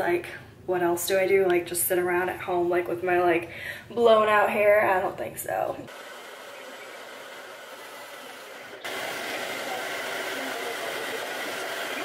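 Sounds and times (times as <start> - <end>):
hair dryer blowing: 5.9 - 12.0.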